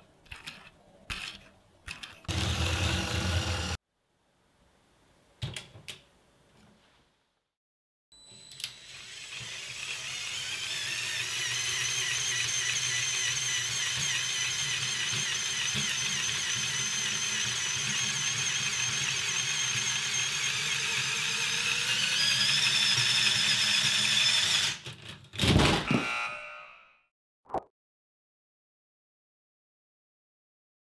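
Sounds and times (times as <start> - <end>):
toy train motor whirring: 8.6 - 24.8.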